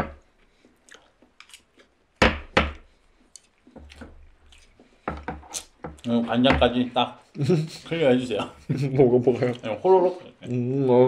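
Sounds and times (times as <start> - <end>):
chopsticks knocking on wooden table: 5.0 - 6.8.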